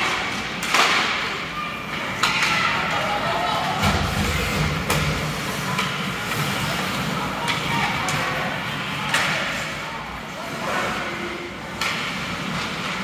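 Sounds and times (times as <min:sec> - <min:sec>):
hockey sticks knocking puck: 0:00.0 - 0:03.1, 0:03.8 - 0:09.6, 0:11.7 - 0:13.0
spectators' voices din: 0:01.0 - 0:11.8.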